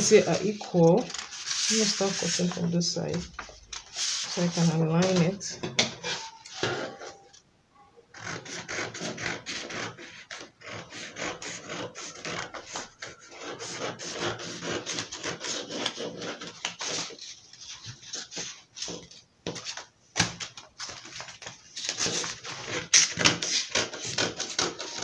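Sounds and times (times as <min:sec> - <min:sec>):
scissors snipping paper: 0:21.9 - 0:25.0.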